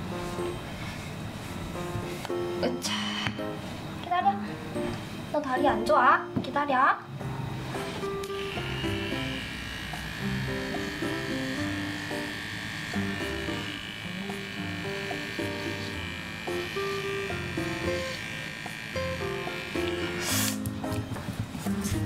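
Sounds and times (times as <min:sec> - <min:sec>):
background music: 0:01.6 - 0:06.4, 0:07.0 - 0:22.0
electric paw trimmer whining: 0:07.3 - 0:22.0.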